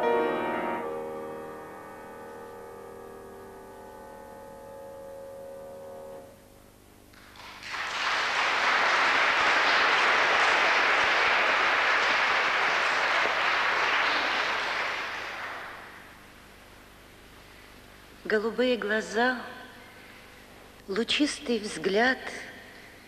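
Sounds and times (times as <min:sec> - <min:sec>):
grand piano chord: 0:00.0 - 0:06.8
audience applause: 0:07.2 - 0:16.0.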